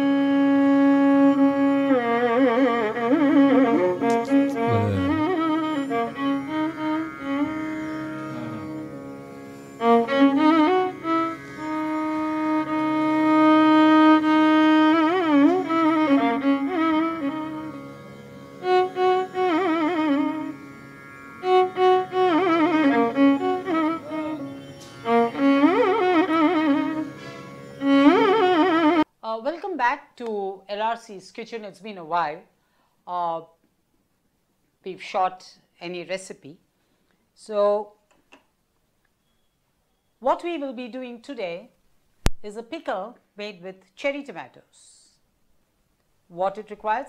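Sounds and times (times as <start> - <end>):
bowed string melody: 0.0 - 29.1
steady drone: 7.3 - 9.2.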